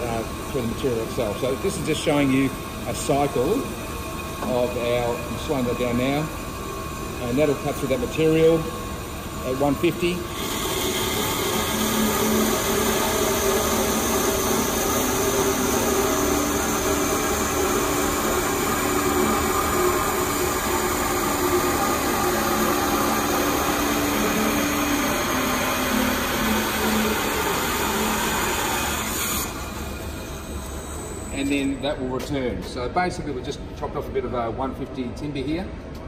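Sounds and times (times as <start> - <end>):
bandsaw cutting timber: 10.2 - 29.8.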